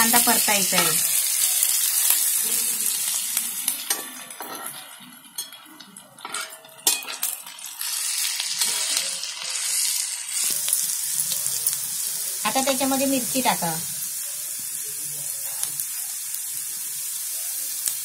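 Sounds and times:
onions sizzling in oil: 0:00.0 - 0:18.0.

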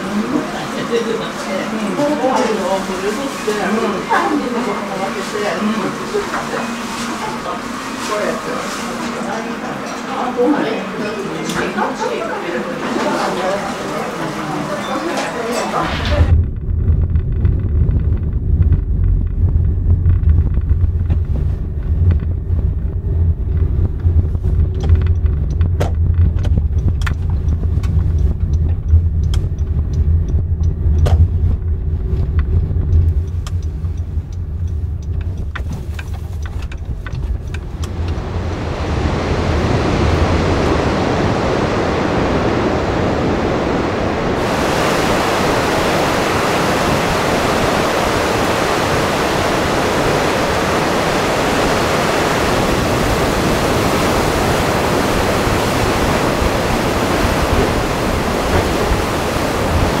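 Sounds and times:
van interior rumble: 0:15.9 - 1:00.0
rush of running water: 0:37.8 - 1:00.0.

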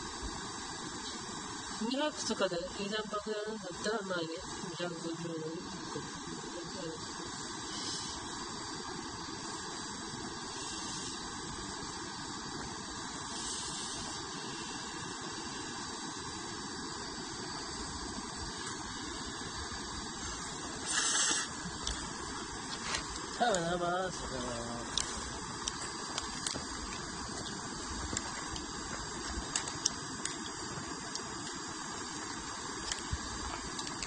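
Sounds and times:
gas stove burner hissing: 0:00.0 - 0:34.0
slurping noodles: 0:20.8 - 0:21.6.

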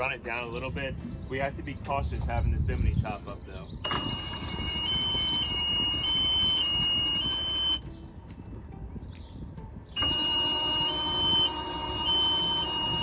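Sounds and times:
two-tone electronic warning buzzer: 0:03.8 - 0:07.8, 0:10.0 - 0:13.0
motor hum: 0:03.9 - 0:07.8, 0:10.0 - 0:13.0.

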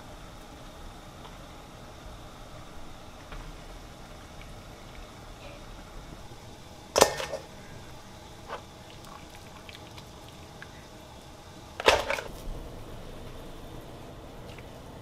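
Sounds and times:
pot boiling: 0:00.0 - 0:15.0
metal tongs clattering on pot: 0:07.0 - 0:07.5.

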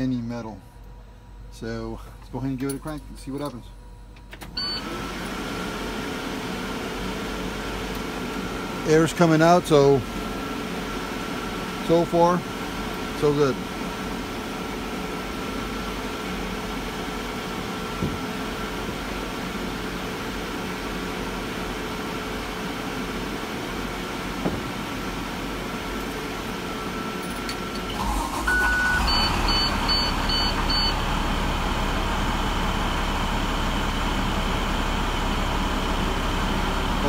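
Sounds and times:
bus engine hum: 0:12.5 - 0:37.0.

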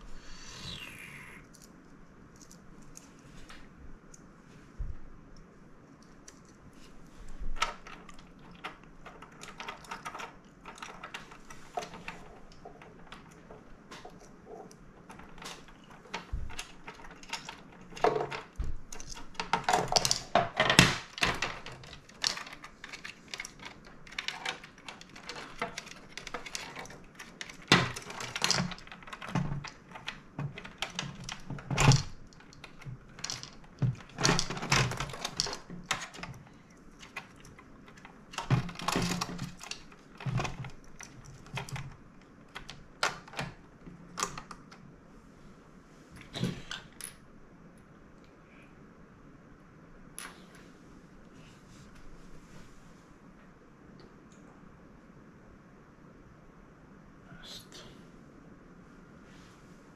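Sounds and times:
plastic parts clicking and knocking: 0:07.4 - 0:44.8.

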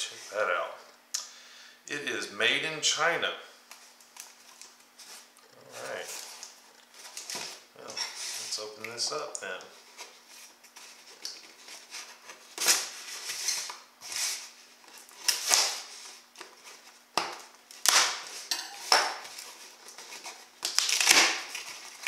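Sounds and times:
knife slitting packing tape: 0:15.1 - 0:16.0, 0:19.1 - 0:22.0.

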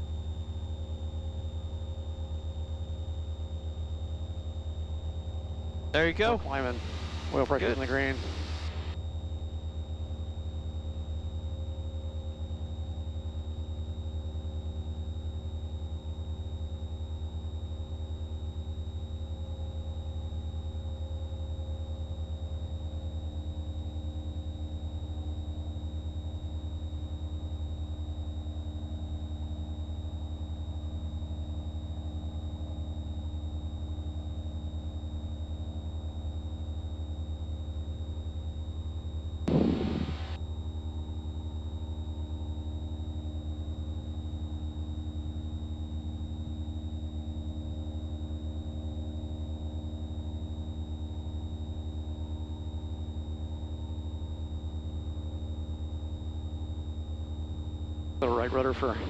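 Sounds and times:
aircraft piston engine droning: 0:06.0 - 0:09.0, 0:39.5 - 0:40.4.

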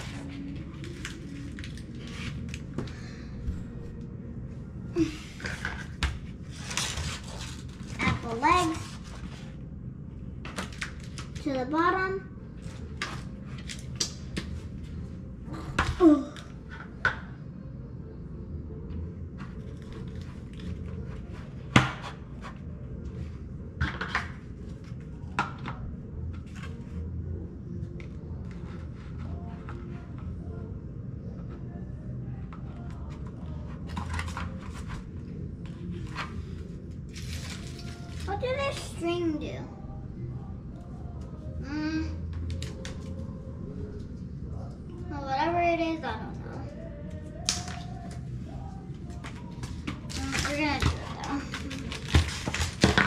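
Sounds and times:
wrapper packets rustling: 0:37.1 - 0:38.4, 0:49.6 - 0:53.0.

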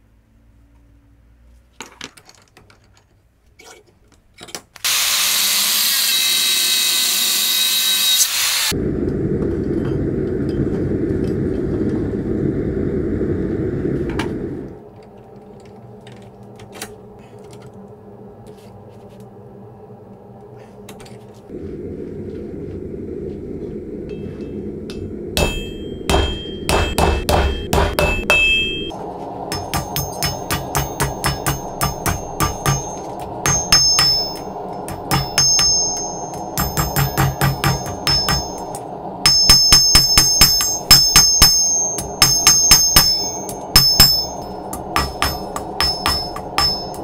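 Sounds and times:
gas forge burner rushing: 0:20.4 - 0:47.0
hammer blows on steel anvil: 0:24.1 - 0:47.0.

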